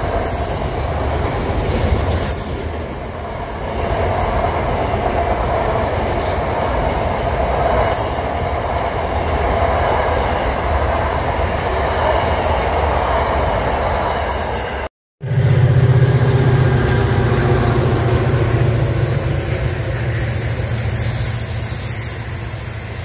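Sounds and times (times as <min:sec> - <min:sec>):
freight train wheels rumbling: 0:00.0 - 0:23.0
high-pitched wheel squeals: 0:15.6 - 0:23.0.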